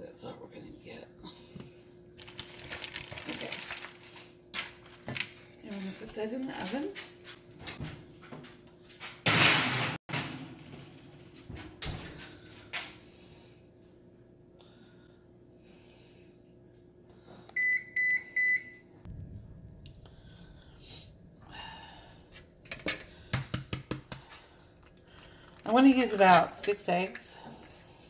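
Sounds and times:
low appliance hum: 0.0 - 28.0
appliance keypad beeps: 17.5 - 18.8.

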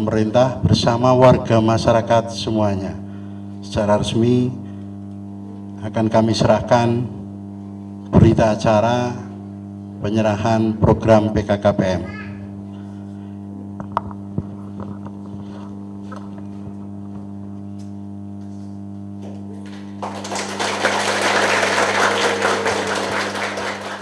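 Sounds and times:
mains hum: 0.0 - 24.0
audience applauding: 19.6 - 24.0.

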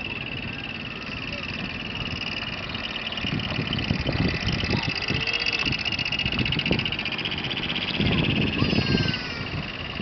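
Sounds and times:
rapidly pulsing high tone: 0.0 - 10.0
small van engine running: 0.0 - 10.0
tires rolling on gravel: 0.0 - 10.0.

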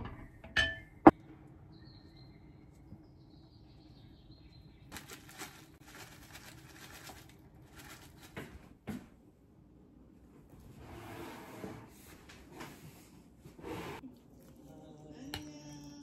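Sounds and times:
plastic bag rustling: 4.9 - 8.8.

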